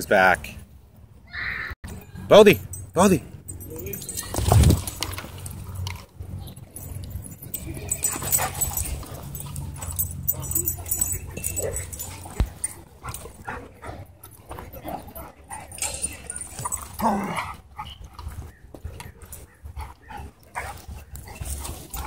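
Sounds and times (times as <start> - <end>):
dogs yipping and whimpering: 6.8 - 22.0.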